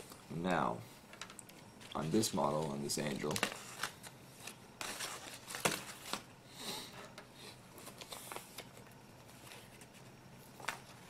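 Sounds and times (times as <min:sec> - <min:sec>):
paper rustling and crinkling: 0:01.1 - 0:06.3, 0:07.7 - 0:11.0.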